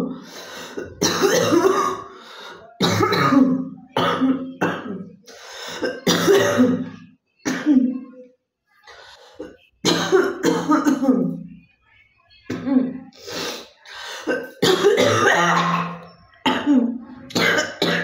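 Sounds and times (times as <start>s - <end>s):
woman coughing: 0.7s - 2.1s, 2.8s - 5.1s, 5.8s - 8.0s, 9.4s - 11.4s, 14.1s - 18.0s.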